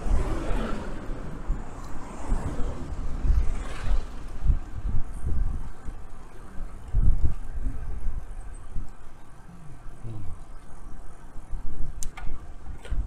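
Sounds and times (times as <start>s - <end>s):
faint road noise: 0.0s - 13.0s
wind rumbling on microphone: 0.0s - 13.0s
sharp click: 12.0s - 13.0s.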